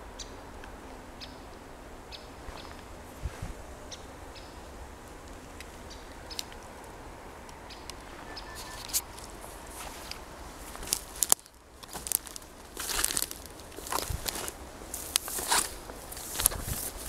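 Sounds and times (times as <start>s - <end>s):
faint outdoor ambience: 0.0s - 17.0s
bird chirps: 7.7s - 9.2s
dry twigs cracking underfoot: 7.7s - 17.0s.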